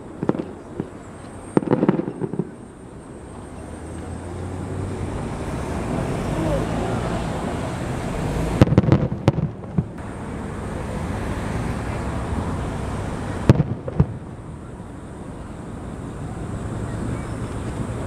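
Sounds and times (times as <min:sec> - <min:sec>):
fireworks bursting: 0:00.0 - 0:03.4, 0:08.6 - 0:10.0, 0:13.1 - 0:14.4
background noise: 0:00.0 - 0:18.0.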